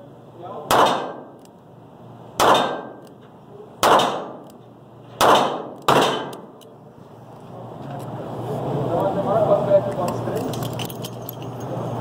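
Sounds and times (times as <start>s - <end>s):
revolver shots echoing indoors: 0.7s - 1.4s, 2.4s - 3.1s, 3.8s - 4.5s, 5.2s - 6.5s.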